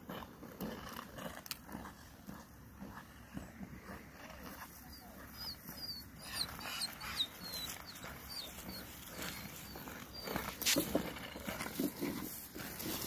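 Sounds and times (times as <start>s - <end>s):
dog whimpering: 4.8s - 10.6s.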